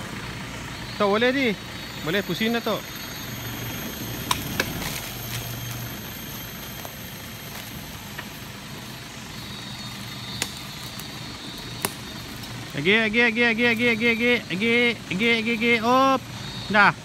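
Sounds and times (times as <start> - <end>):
truck engine running at low revs: 0.0 - 17.0.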